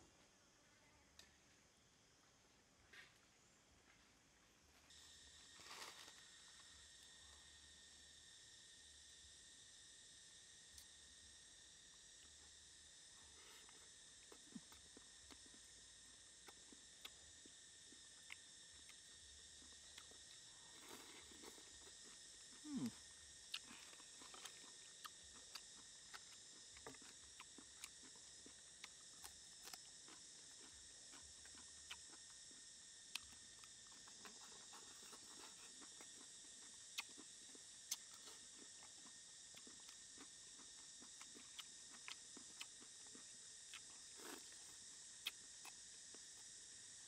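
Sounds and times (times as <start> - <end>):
crunchy chewing: 4.8 - 7.4, 13.2 - 46.6
high-pitched hiss: 4.8 - 25.4.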